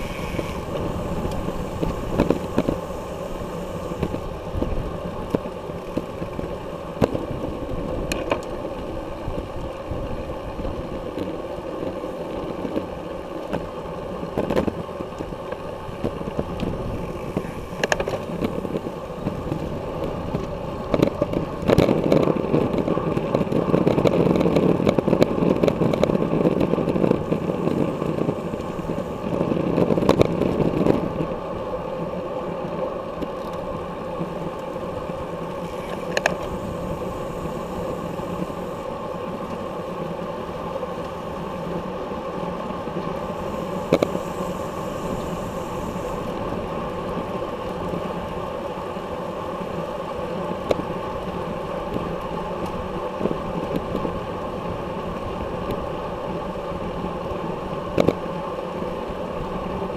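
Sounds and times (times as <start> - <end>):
wind rush: 0.0 - 8.2, 34.8 - 39.7
bicycle tyre noise: 0.0 - 59.9.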